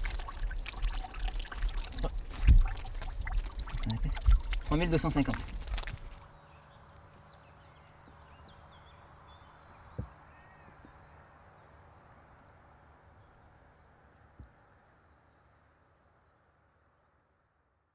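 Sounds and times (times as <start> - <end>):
dull thumps: 2.3 - 3.0
distant bird calls: 6.2 - 12.3.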